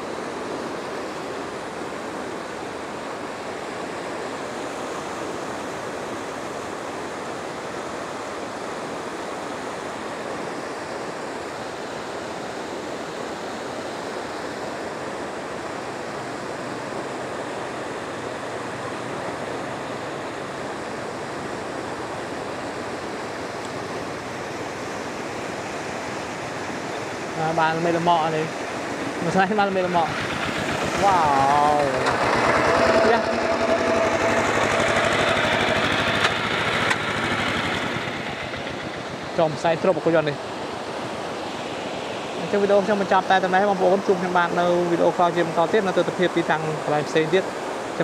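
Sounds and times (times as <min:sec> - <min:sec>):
floodwater rushing: 0:00.0 - 0:48.0.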